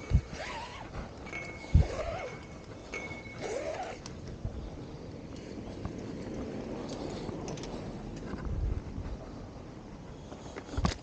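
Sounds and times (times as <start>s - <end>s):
rope hauled in by hand: 0.0s - 2.6s, 3.4s - 4.0s.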